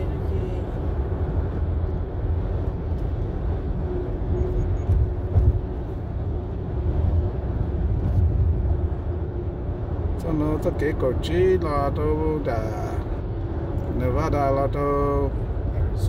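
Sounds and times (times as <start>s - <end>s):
car road rumble: 0.0s - 16.0s.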